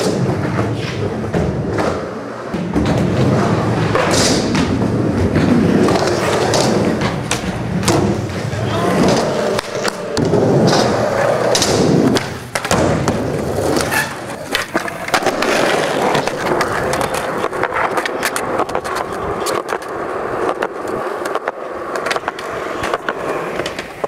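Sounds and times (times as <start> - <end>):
skateboard wheels rumbling on concrete: 0.0 - 24.0
skateboard clacks and clicks: 2.5 - 24.0
skateboard scraping a concrete ledge: 13.1 - 24.0.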